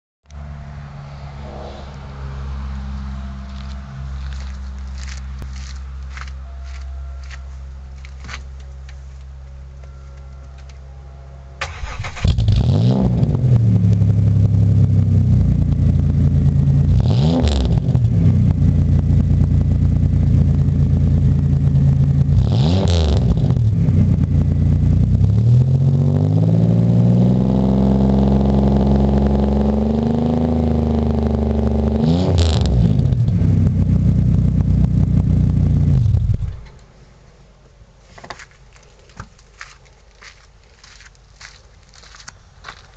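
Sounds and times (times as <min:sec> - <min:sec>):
engine revving: 0:00.3 - 0:05.5, 0:11.6 - 0:36.6
steady low hum: 0:00.3 - 0:11.6
car engine starting and idling: 0:07.2 - 0:22.5.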